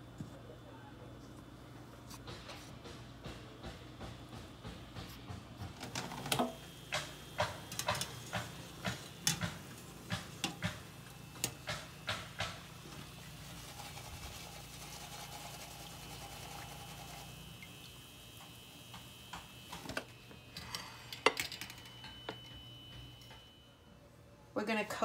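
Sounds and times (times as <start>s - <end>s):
dough frying in hot oil: 6.0s - 19.9s.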